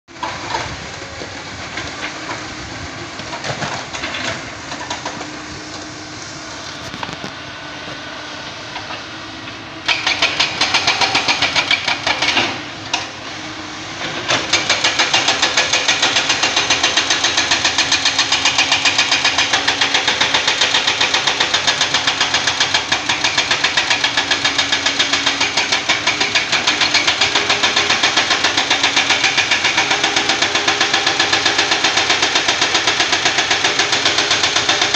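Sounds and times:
excavator diesel engines: 0.1 - 34.9
loud rapid knocking: 9.9 - 13.1, 14.1 - 34.9.

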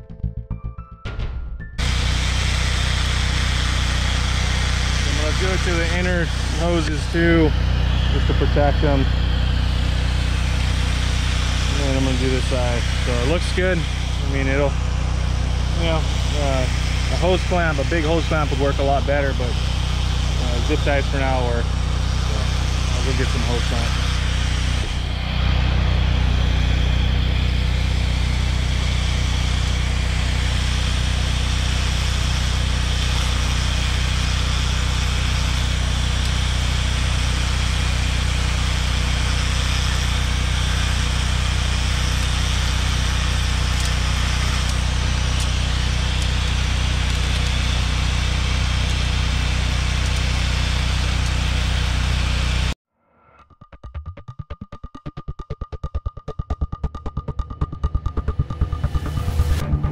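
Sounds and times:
engine running steadily: 1.8 - 52.8, 56.9 - 59.9.

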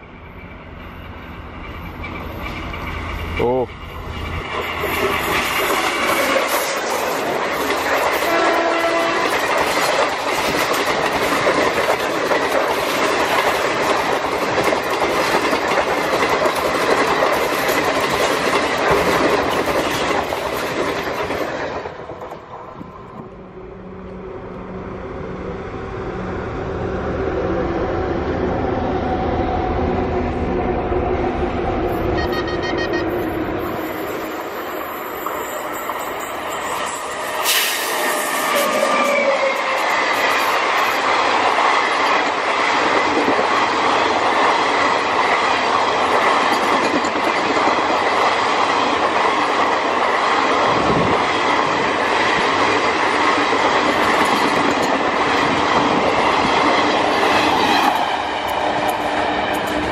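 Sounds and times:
train approaching: 0.0 - 59.9
train rushing past: 0.0 - 59.9
train horn blast: 8.2 - 9.5, 32.0 - 33.4.

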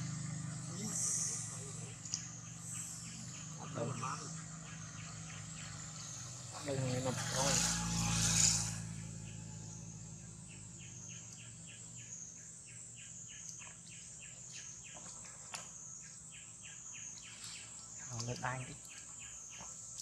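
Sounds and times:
high-pitched insect buzz: 0.0 - 12.4.

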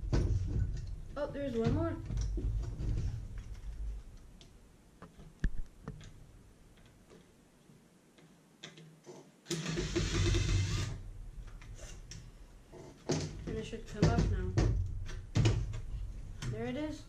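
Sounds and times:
drill-driver motor running: 9.5 - 11.0.

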